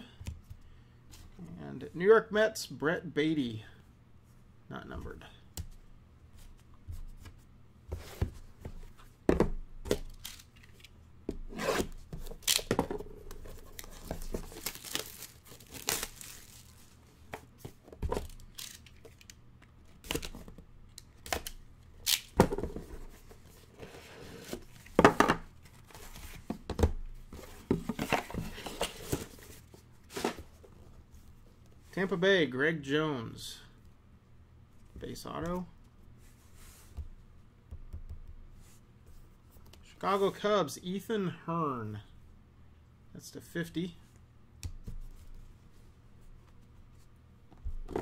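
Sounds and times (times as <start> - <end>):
plastic wrapping tearing and crinkling: 13.7 - 16.8.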